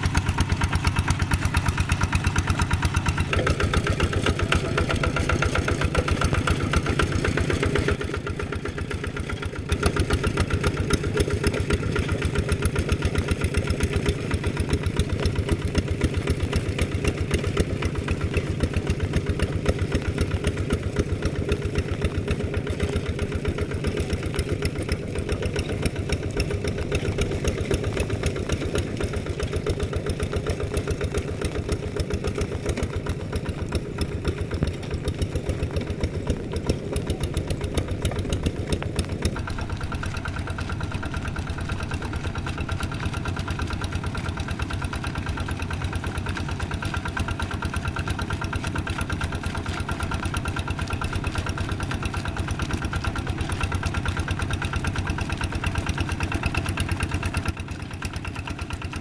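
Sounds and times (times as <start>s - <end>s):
diesel engine chugging: 0.0s - 59.0s.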